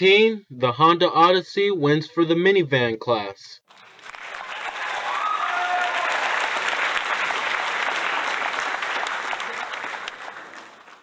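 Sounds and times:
crowd applause: 3.7s - 11.0s.

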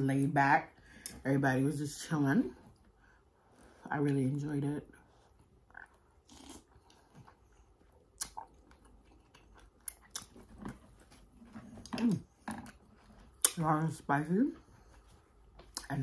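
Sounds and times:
person chewing noodle soup: 5.1s - 13.6s
wet mouth clicks: 8.2s - 10.4s.

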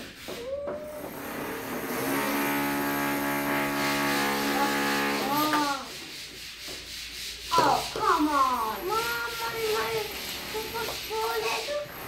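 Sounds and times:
electric drill running: 1.1s - 5.3s.

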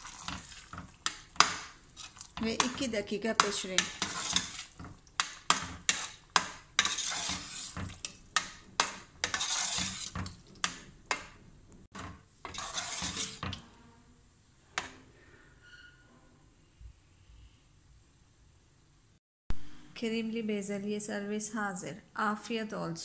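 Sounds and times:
metal spoon stirring in pot: 0.0s - 13.7s.

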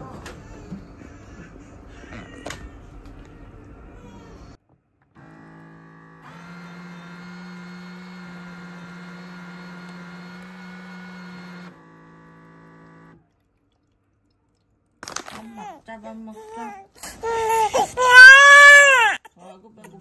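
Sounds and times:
machine humming: 5.2s - 13.3s.

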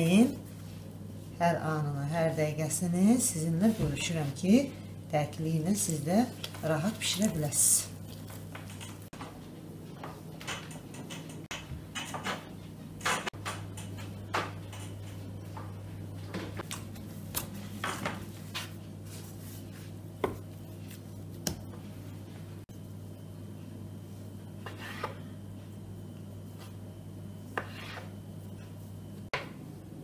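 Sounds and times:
steady low hum: 0.0s - 30.0s
hands kneading dough: 16.6s - 22.5s.

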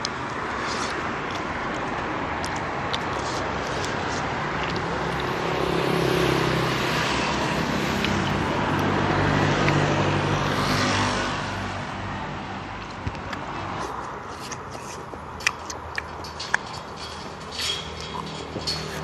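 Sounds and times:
vehicles passing on street: 0.0s - 19.0s.

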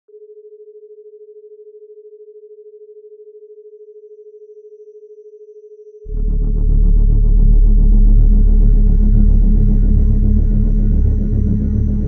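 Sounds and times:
deep pulsing electronic music: 6.1s - 12.0s
steady pure tone: 6.1s - 12.0s.

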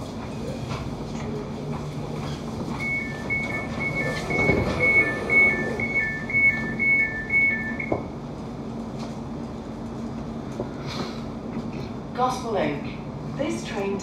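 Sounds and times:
train carriage hum: 0.0s - 14.0s
two-tone door warning beeps: 2.8s - 8.1s.

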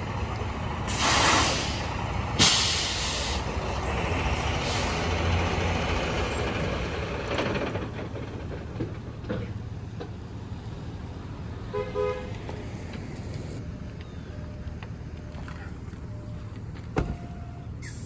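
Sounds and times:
air brakes hissing: 0.9s - 3.6s, 4.6s - 5.1s, 17.8s - 18.0s.

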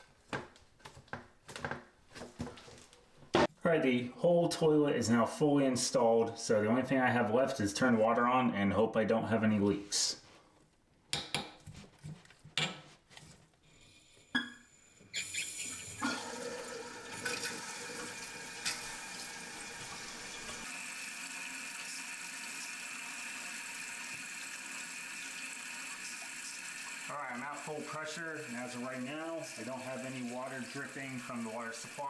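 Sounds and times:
water hissing into toilet tank: 15.0s - 32.0s.

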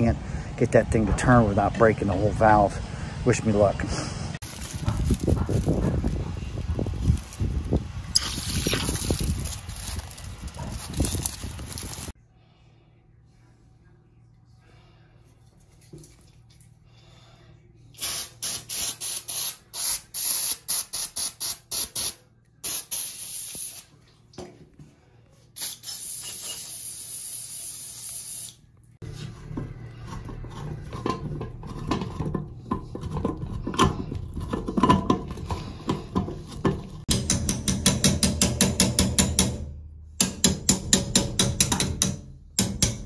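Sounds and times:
aerosol can spraying: 18.0s - 23.8s, 25.6s - 28.6s
knocking and clatter: 29.2s - 43.0s.

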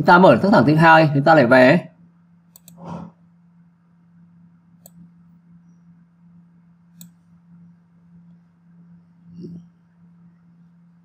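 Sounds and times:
faint low hum: 0.0s - 11.0s
computer mouse clicks: 2.5s - 2.9s, 4.8s - 5.0s, 7.0s - 7.2s.

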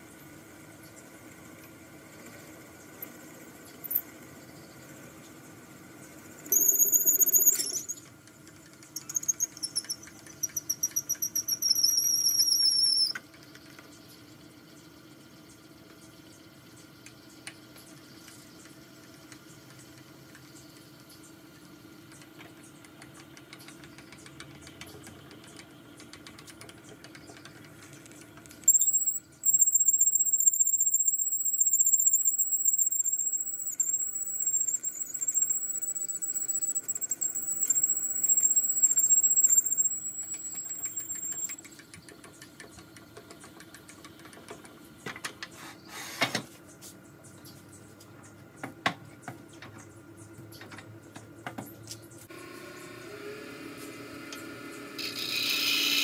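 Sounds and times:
drill bit squealing: 6.5s - 8.0s, 9.0s - 13.1s, 28.7s - 41.6s, 55.0s - 56.0s
clicks: 22.1s - 44.7s.

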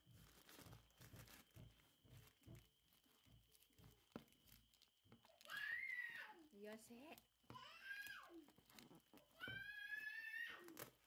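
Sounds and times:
cardboard box rustling and tapping: 0.0s - 5.2s.

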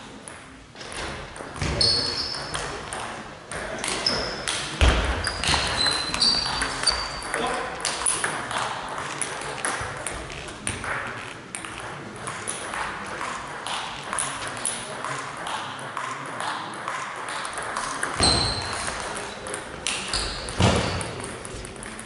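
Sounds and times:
shoe squeaks: 1.7s - 2.5s, 4.0s - 4.5s, 5.2s - 7.2s, 18.2s - 18.8s.

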